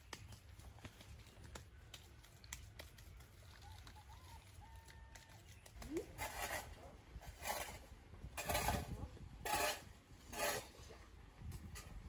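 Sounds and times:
shovel scraping loose earth: 6.1s - 11.0s.

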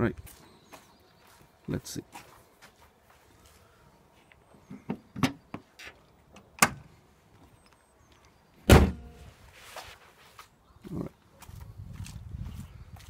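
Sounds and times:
car bonnet slamming shut: 8.7s - 9.2s.

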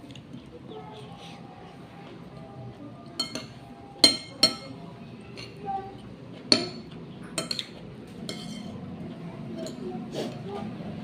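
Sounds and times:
metal spoon clinking against dish: 3.2s - 4.8s, 6.5s - 8.8s.

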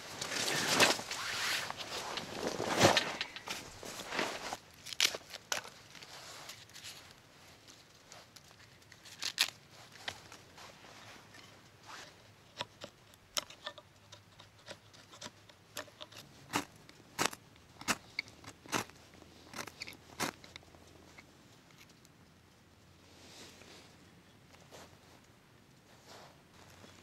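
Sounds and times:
dry twigs snapping and crackling: 4.7s - 7.1s, 7.7s - 10.4s.

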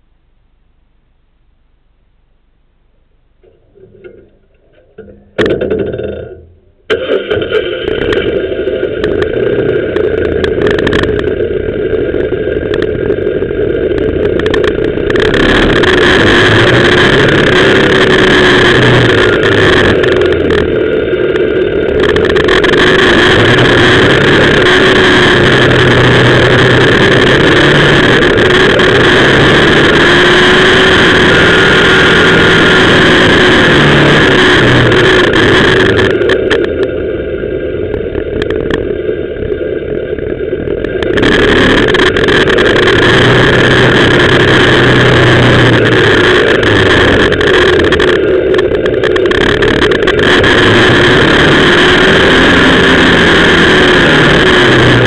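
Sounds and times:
motorcycle engine climbing: 3.3s - 37.0s, 37.8s - 55.0s.

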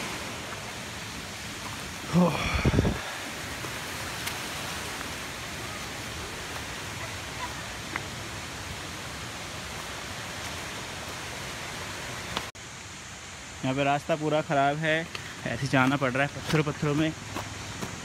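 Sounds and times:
flowing water rushing: 0.0s - 18.0s
footsteps on stony path: 15.0s - 18.0s.

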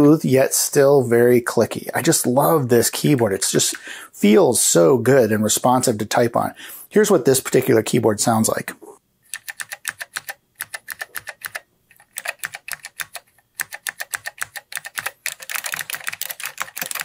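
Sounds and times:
clicky keyboard typing: 9.3s - 17.0s.

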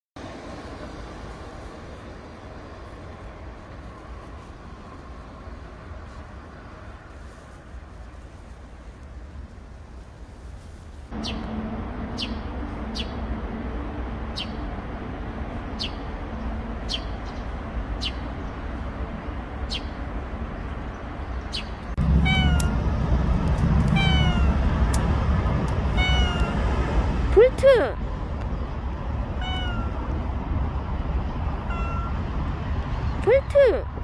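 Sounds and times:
cat meowing: 22.2s - 22.8s, 23.9s - 24.6s, 25.9s - 26.6s, 29.4s - 30.1s, 31.6s - 32.3s.

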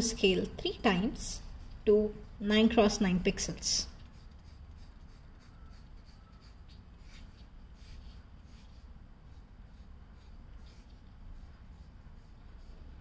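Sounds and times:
pencil scratching on paper: 4.0s - 13.0s.

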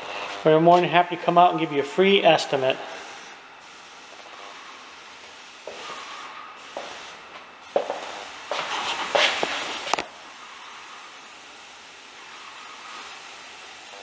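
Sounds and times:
steady hiss: 0.0s - 14.0s
footsteps on wood floor: 5.7s - 6.0s, 7.8s - 9.6s.

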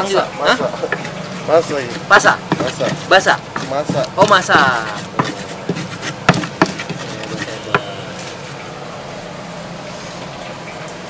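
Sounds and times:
steady buzzing hum: 0.3s - 9.9s
stone pestle knocking mortar: 0.6s - 7.9s.

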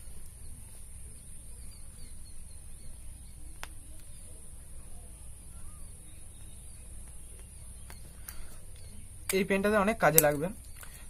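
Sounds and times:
distant bird chirps: 0.0s - 11.0s.

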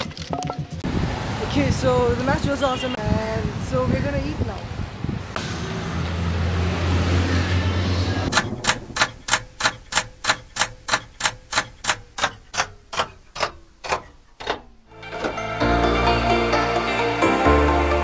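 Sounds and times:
clock ticking: 8.4s - 14.2s
music: 14.9s - 18.0s.

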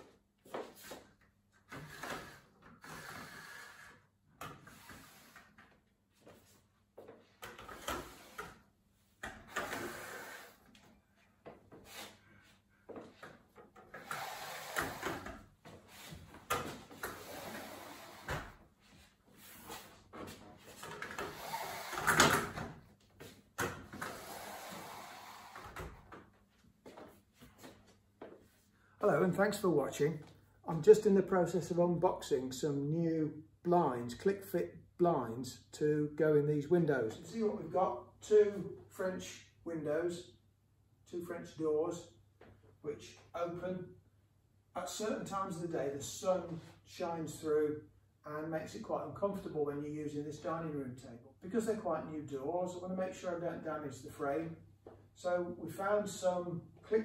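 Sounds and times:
blinds swishing up and down: 0.6s - 6.5s, 7.3s - 11.0s, 13.2s - 26.1s.

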